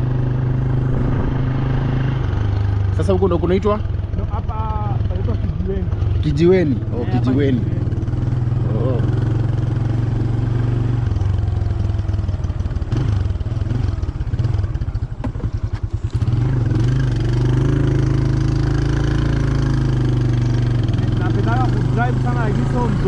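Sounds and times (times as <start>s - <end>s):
motorcycle engine running: 0.0s - 23.0s.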